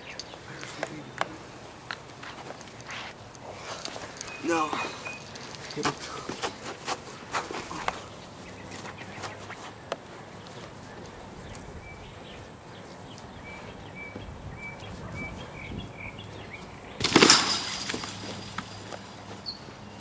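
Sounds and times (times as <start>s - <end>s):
faint bird chirps: 4.2s - 5.4s.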